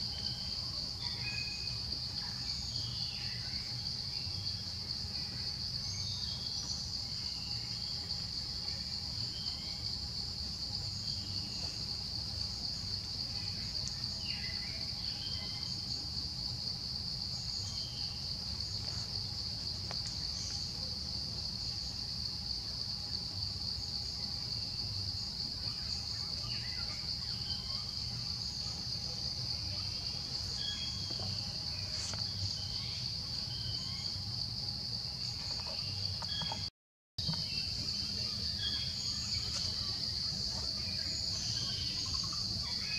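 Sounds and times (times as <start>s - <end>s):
insects droning in chorus: 0.0s - 42.9s
faint chirps: 22.9s - 42.9s.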